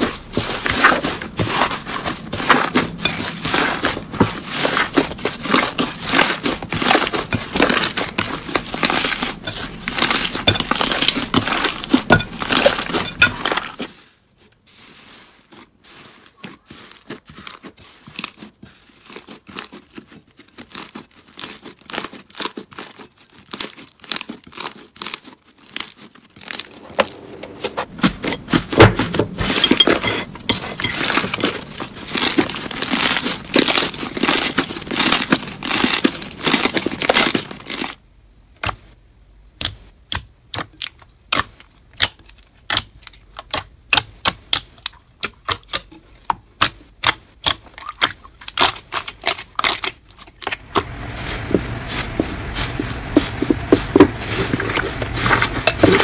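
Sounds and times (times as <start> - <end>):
slime crackling and popping: 31.0 - 37.9.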